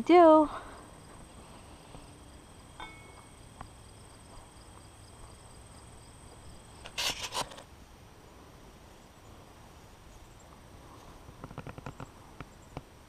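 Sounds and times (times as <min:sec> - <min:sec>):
insects chirping: 0:00.1 - 0:07.6.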